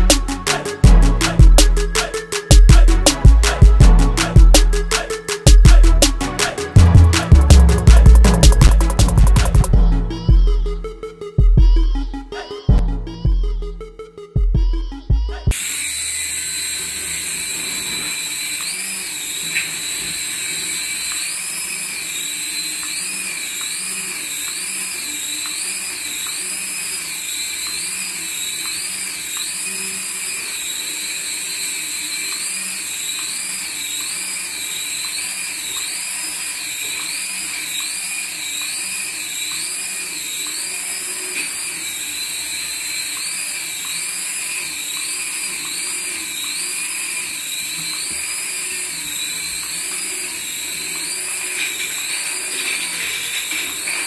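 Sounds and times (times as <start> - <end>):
toy helicopter motor whine: 15.5 - 54.0.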